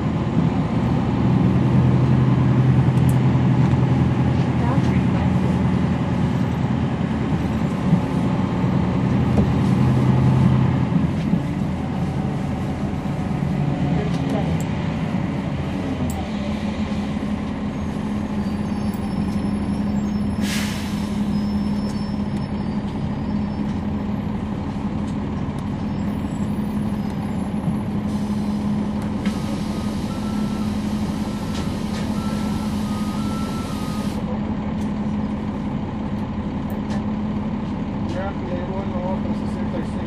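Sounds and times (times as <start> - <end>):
bus diesel engine hum: 0.0 - 40.0.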